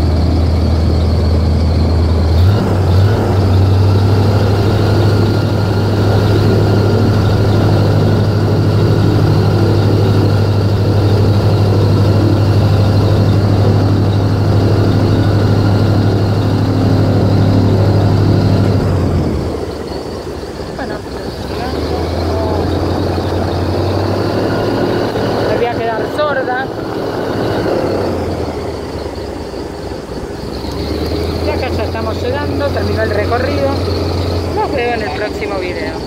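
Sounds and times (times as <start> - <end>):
airboat engine drone: 0.0 - 36.0.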